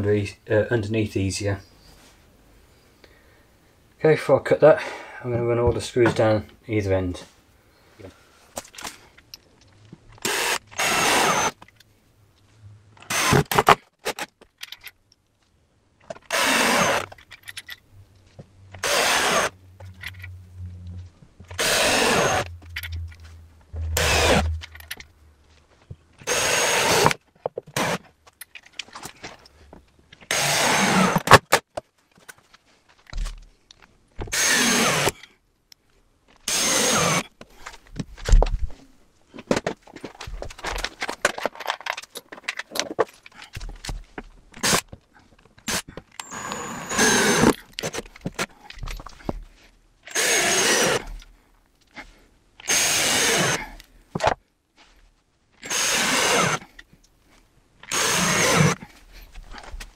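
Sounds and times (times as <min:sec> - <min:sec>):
cordless drill driving screws: 0:10.2 - 0:11.6, 0:13.0 - 0:13.8, 0:16.2 - 0:17.2, 0:18.8 - 0:19.6, 0:21.5 - 0:22.5, 0:24.0 - 0:24.7, 0:26.2 - 0:28.0, 0:30.3 - 0:31.4, 0:34.3 - 0:35.2, 0:36.5 - 0:37.2, 0:45.7 - 0:48.1, 0:50.1 - 0:51.2, 0:52.6 - 0:53.7, 0:55.6 - 0:56.8, 0:57.8 - 0:58.8.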